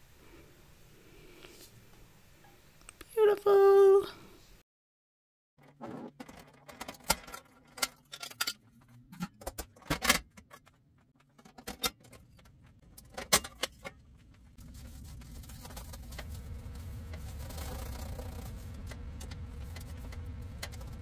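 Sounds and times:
cloth wiping stovetop: 14.6s - 21.0s.

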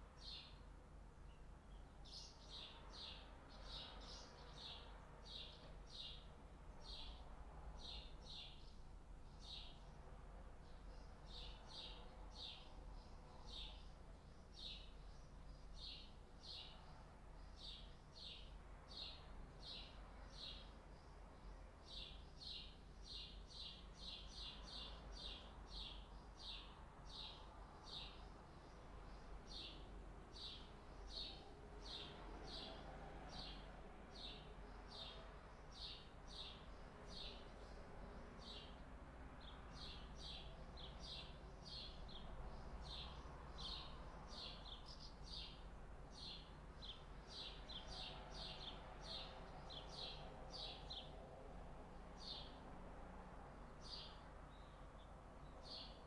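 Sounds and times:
bird chirping: 10.7s - 29.8s, 34.2s - 38.8s, 39.4s - 51.2s, 53.8s - 56.0s.

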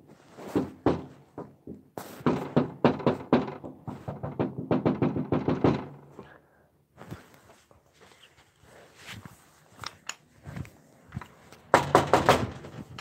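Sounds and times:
knocks and thumps on phone microphone: 0.4s - 6.2s, 11.7s - 13.0s.

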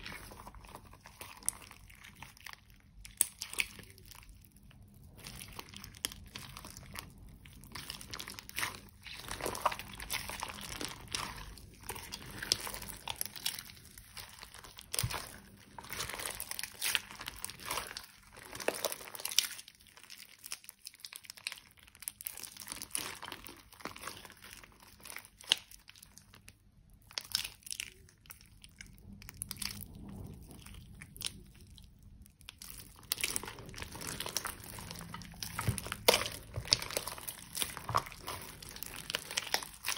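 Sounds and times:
slime crackling and squelching: 0.0s - 39.9s.

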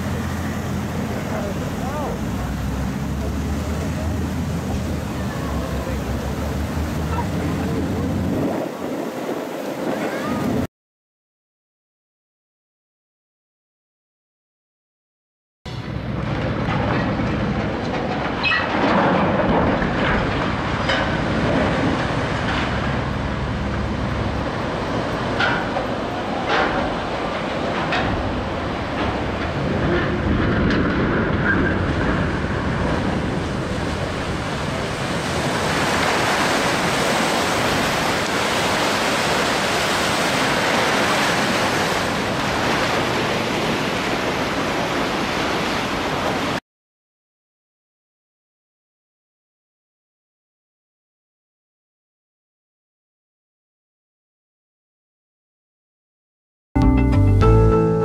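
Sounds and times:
churning water hiss: 0.0s - 10.7s, 31.8s - 46.6s
ship sliding with rumbling clatter: 0.0s - 10.7s, 15.7s - 46.6s.

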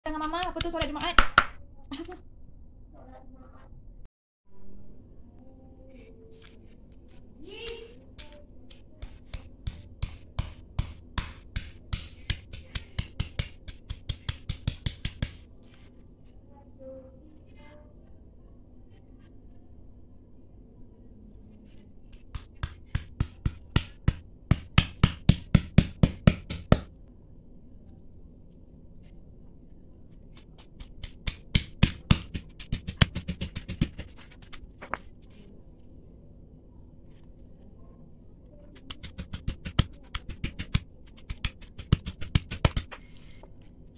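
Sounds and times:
stone pestle pounding in mortar: 8.2s - 15.4s, 22.2s - 26.9s, 30.6s - 34.3s, 38.8s - 42.9s.

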